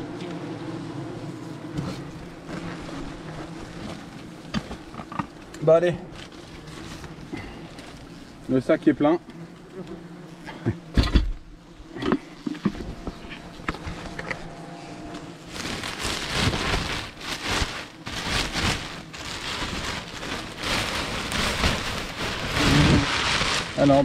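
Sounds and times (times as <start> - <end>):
plastic bin bag rustling: 1.8 - 8.4, 15.1 - 24.0.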